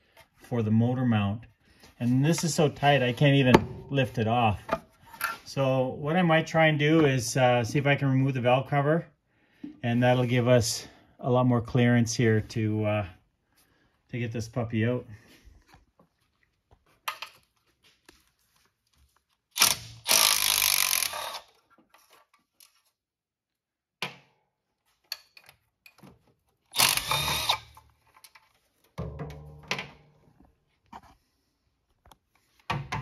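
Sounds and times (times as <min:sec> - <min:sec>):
cordless power tool running: 0:26.8 - 0:27.7.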